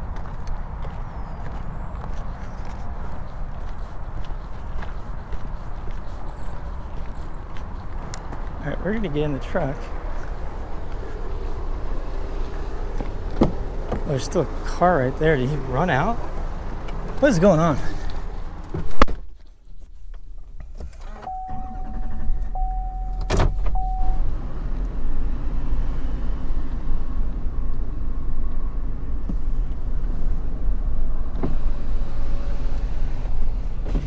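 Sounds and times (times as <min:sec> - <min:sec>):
engine starting and idling: 0:20.7 - 0:24.7
dashboard chime: 0:21.3 - 0:24.3
car door slamming shut: 0:23.1 - 0:24.1.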